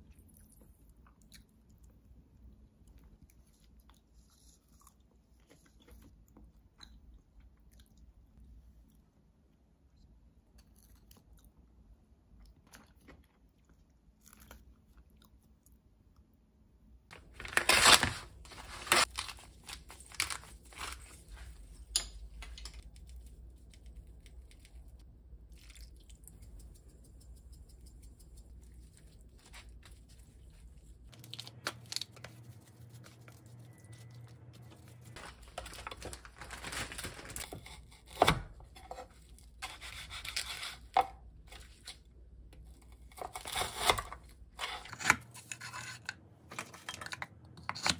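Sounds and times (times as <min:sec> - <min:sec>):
faint chewing: 0:00.0 - 0:09.2, 0:10.5 - 0:16.3, 0:22.8 - 0:35.2
low steady hum: 0:00.0 - 0:47.9
plastic tearing and crinkling: 0:17.1 - 0:21.4, 0:34.9 - 0:40.9.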